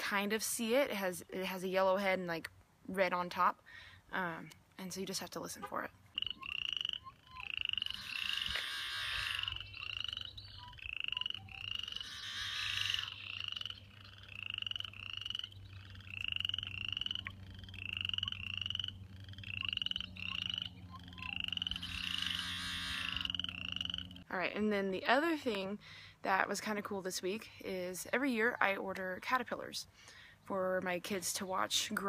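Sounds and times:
harsh buzzy bird song: 0:06.0 - 0:14.8, 0:15.4 - 0:24.2
chorus of frogs calling: 0:06.1 - 0:24.3.

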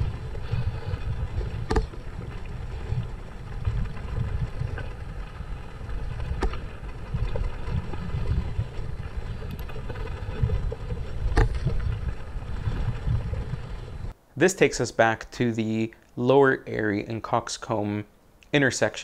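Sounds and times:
bike rattling: 0:00.0 - 0:14.2
wind rumble on microphone: 0:00.0 - 0:14.2.

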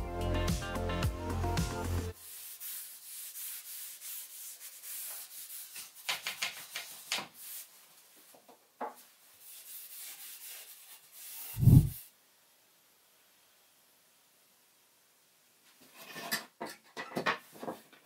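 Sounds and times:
cloth rubbing on wood: 0:09.4 - 0:12.0.

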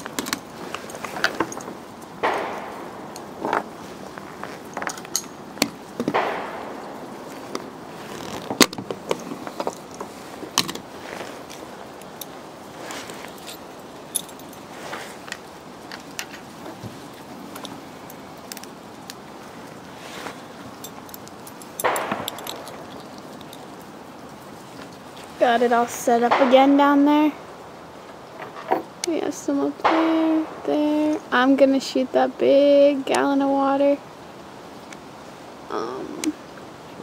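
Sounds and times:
metal magazines clinking on wood: 0:00.0 - 0:19.2, 0:20.1 - 0:23.8.

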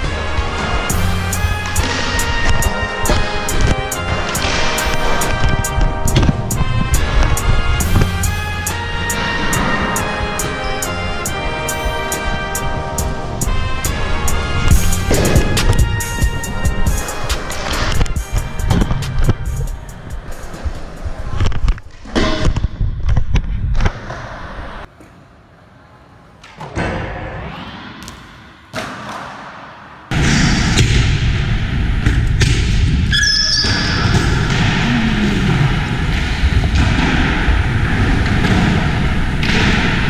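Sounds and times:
short squeak: 0:33.1 - 0:34.2.

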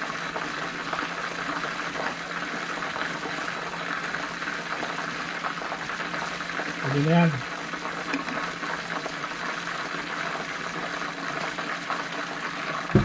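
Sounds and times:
wings deep-frying in oil: 0:00.0 - 0:13.0.

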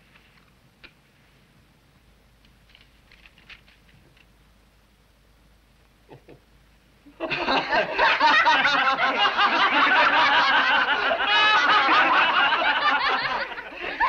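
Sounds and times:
crowd laughing: 0:07.1 - 0:14.0.

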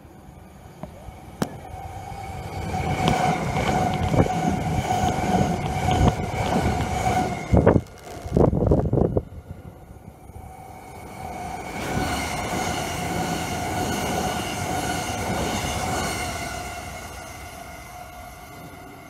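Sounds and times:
train rumble and whine: 0:00.0 - 0:19.0
heavy low air buffets: 0:00.9 - 0:11.4.

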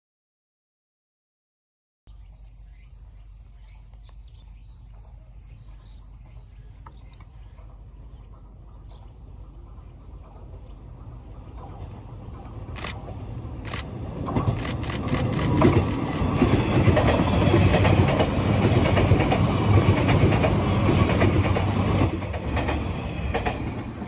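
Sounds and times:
insect chorus: 0:02.1 - 0:23.8
electric train rumble: 0:04.6 - 0:24.0
wheel on rail clicks: 0:11.6 - 0:23.8.

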